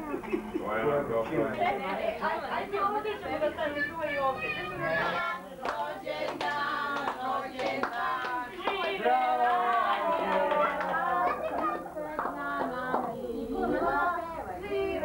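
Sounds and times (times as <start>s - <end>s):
children and adults singing: 4.3s - 15.0s
hand claps: 5.6s - 9.0s, 9.7s - 13.2s.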